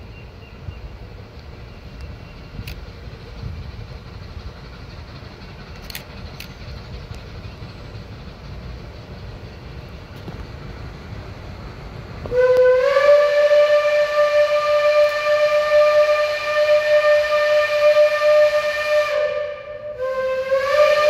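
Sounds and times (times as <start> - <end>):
steam locomotive rumble: 0.0 - 21.0
steam whistle blowing: 12.3 - 21.0.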